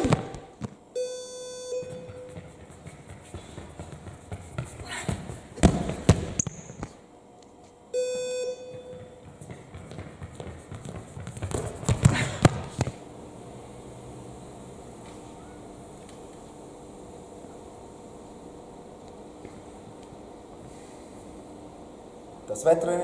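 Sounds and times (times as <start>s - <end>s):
short buzzer tone: 0.0s - 2.5s, 8.0s - 9.2s
running footsteps: 1.6s - 7.0s, 8.4s - 13.0s.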